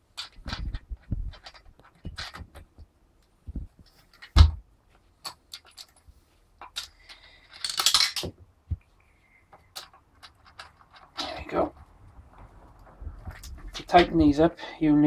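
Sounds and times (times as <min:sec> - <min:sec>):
metal nuts and washers clinking: 0:05.2 - 0:08.3, 0:09.6 - 0:12.0
metallic rattle: 0:09.7 - 0:14.2.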